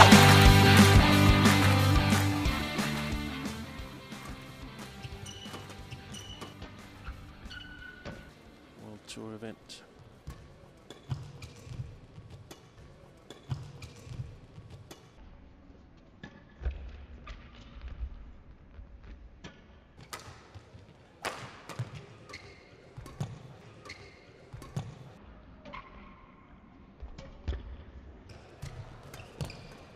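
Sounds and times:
rackets cracking shuttlecock: 0.0 - 8.2.

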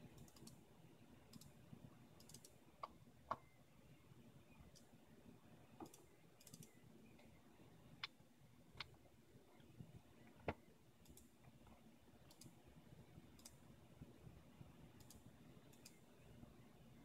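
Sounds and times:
computer mouse clicks: 0.0 - 0.6, 1.3 - 1.6, 2.2 - 3.5, 5.8 - 7.4, 10.4 - 11.6, 12.2 - 12.6, 13.4 - 13.6, 15.0 - 16.1.

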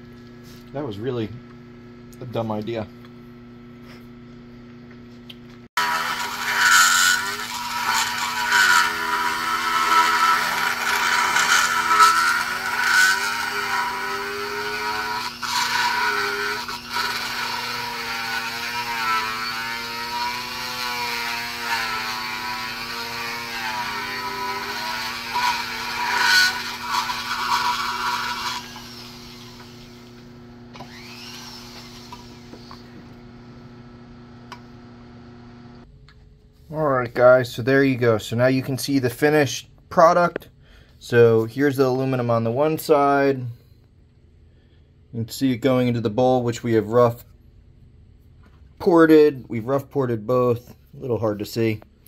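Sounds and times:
rotary grinder whining: 5.8 - 33.2.

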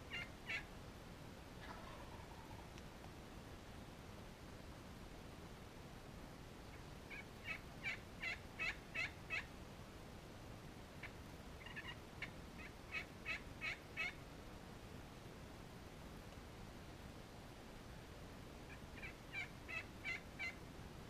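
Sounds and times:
turkey yelping: 0.0 - 0.7, 1.6 - 2.7, 7.1 - 9.5, 11.0 - 14.2, 18.7 - 20.6.

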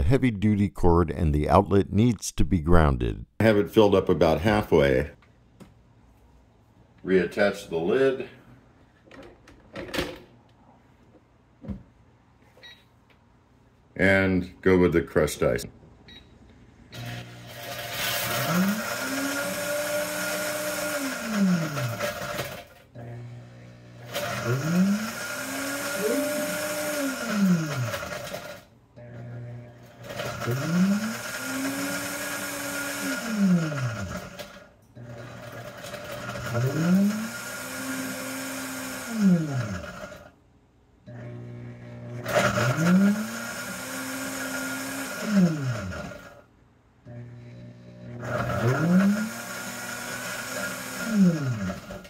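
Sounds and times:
blender crushing ice: 17.0 - 23.3, 24.0 - 40.3, 41.1 - 46.4, 47.1 - 52.0.

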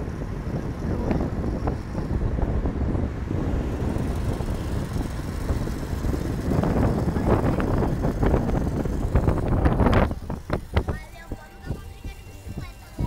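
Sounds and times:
road noise: 0.0 - 13.0
vehicles passing: 0.0 - 13.0
wind rushing through car window: 0.0 - 13.0.

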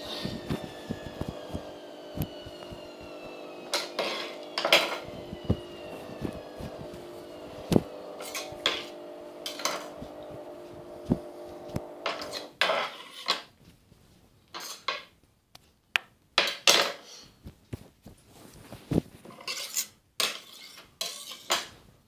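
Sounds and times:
washing machine hum: 0.0 - 12.5
knife striking and scraping stone board: 12.1 - 13.5, 19.4 - 21.7.

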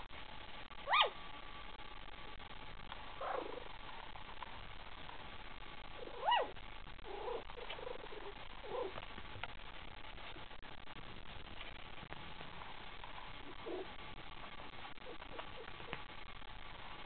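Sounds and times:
puppy high squeal: 0.9 - 1.1, 6.2 - 6.5.

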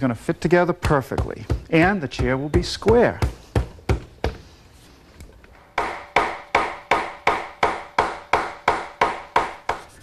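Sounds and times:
hammer blows ringing: 1.1 - 4.0.

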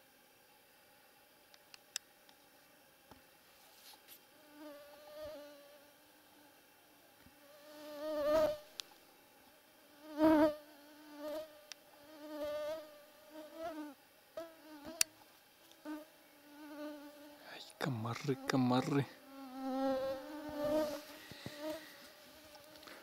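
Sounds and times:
mosquitoes whining: 18.2 - 23.0.

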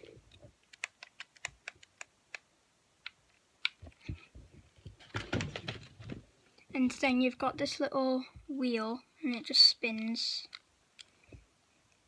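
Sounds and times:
handling noise: 3.7 - 7.8.

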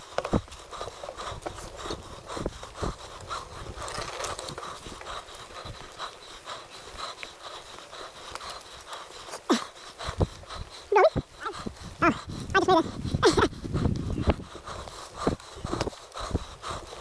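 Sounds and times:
rider breathing hard: 0.0 - 17.0
mountain bike rattling over bumps: 3.3 - 6.0.

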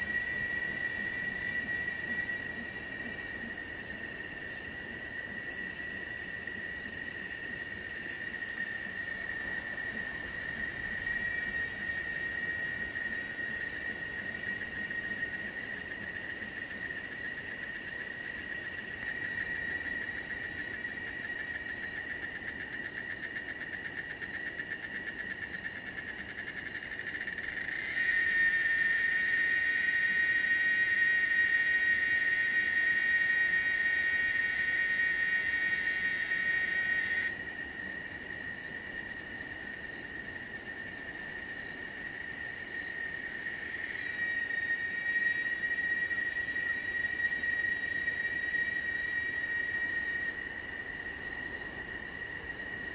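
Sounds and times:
insect chorus shrill drone: 0.0 - 52.9.

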